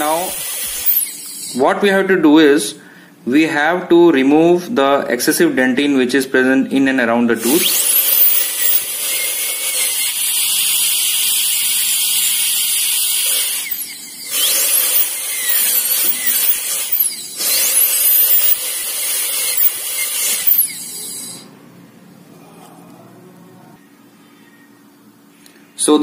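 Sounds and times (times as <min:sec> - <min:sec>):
dental drill whining: 0:00.0 - 0:01.7, 0:07.4 - 0:21.5.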